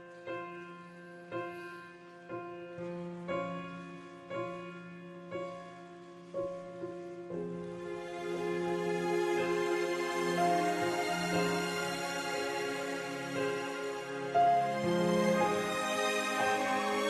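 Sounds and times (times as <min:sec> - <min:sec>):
slow solo piano chords: 0:00.0 - 0:17.0.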